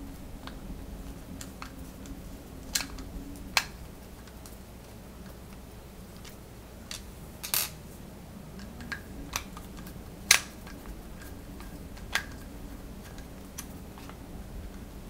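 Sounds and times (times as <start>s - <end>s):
metal parts rattling: 6.2s - 7.8s.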